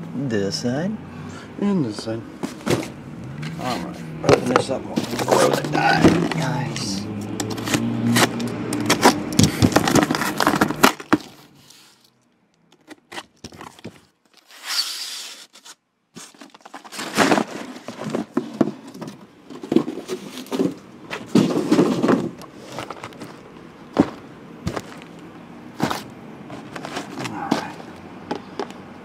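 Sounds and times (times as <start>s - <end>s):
cardboard scraping: 2.4s - 12.1s, 12.8s - 28.6s
plastic wrap crinkling: 8.3s - 12.2s.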